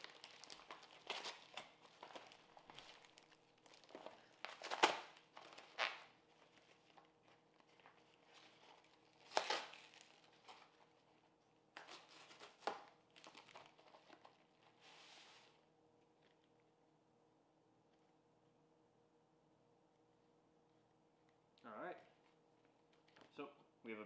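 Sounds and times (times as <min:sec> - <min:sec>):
packing paper crinkling: 0:00.0 - 0:15.5
cardboard box being torn: 0:09.2 - 0:10.3.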